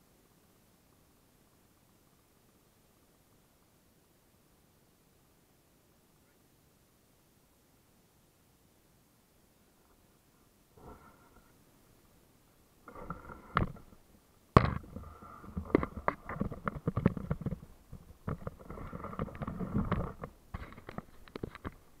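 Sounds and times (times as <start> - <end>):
camera handling knocks and scrapes: 14.6 - 21.8.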